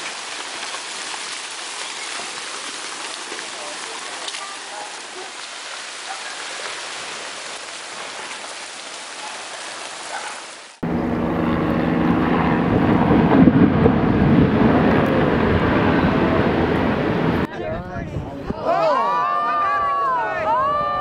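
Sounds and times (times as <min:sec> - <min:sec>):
rain falling: 0:00.0 - 0:10.8
low hum: 0:10.8 - 0:17.5.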